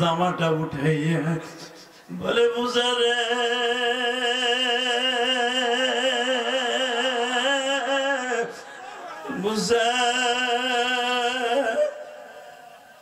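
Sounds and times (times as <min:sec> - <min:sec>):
man singing long note with vibrato: 0:00.0 - 0:13.0.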